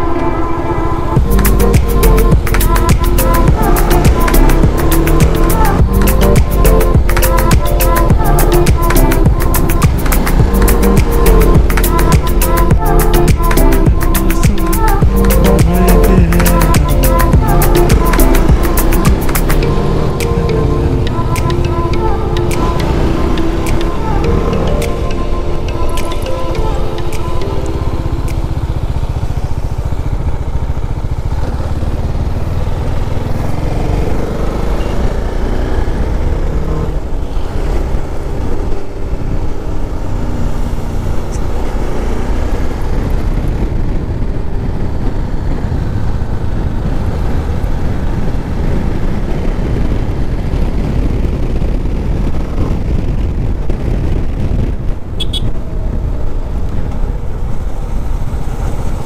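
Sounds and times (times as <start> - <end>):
motorcycle engine running: 1.2 - 24.8, 27.6 - 59.0
wind rumble on microphone: 27.5 - 59.0.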